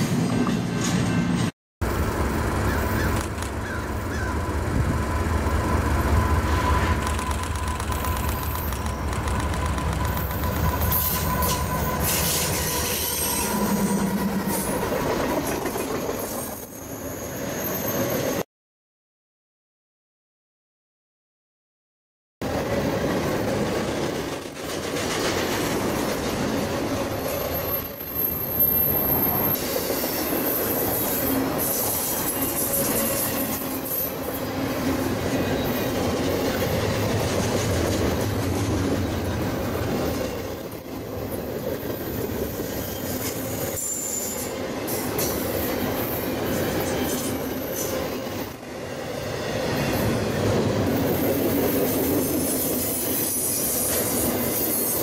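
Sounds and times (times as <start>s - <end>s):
freight train wheels rumbling: 0.0s - 16.9s, 22.4s - 55.0s
high wheel squeals: 5.5s - 14.8s, 27.1s - 36.0s.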